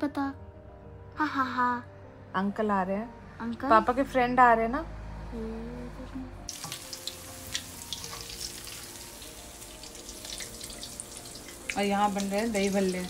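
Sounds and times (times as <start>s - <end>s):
hot oil sizzling in a pan: 6.5s - 13.0s.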